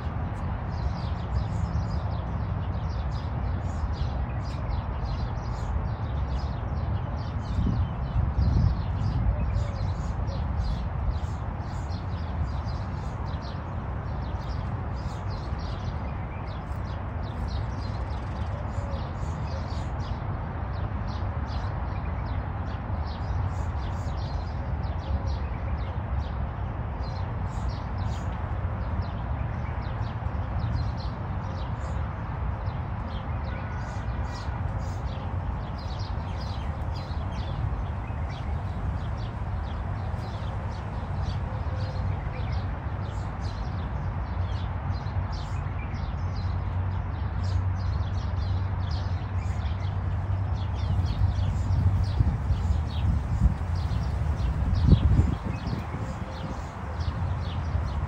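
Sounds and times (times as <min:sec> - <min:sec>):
small birds chirping: 0:29.0 - 0:58.0.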